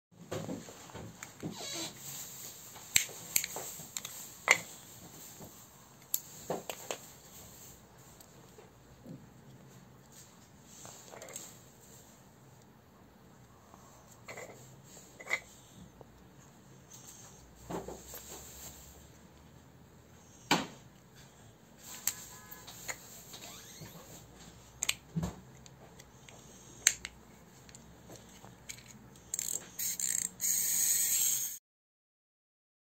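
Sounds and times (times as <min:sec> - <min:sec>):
plastic toy parts clicking: 0:28.6 - 0:31.6.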